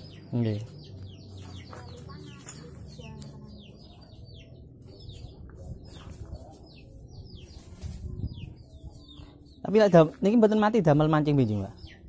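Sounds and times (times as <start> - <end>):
small birds chirping: 0.0 - 12.0
rustling and handling noise: 4.9 - 10.0.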